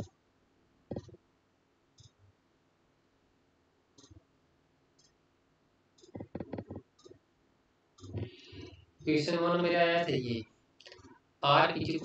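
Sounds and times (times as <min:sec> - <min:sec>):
computer mouse clicks: 0:00.9 - 0:01.2, 0:02.0 - 0:02.2, 0:04.0 - 0:04.2, 0:06.0 - 0:07.2, 0:08.0 - 0:08.8.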